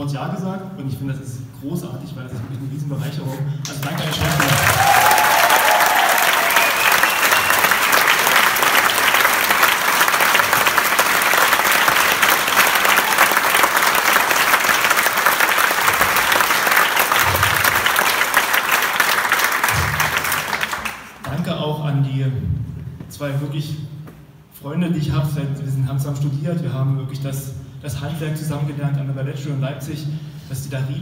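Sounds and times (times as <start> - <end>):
crowd applauding: 3.7 - 21.4.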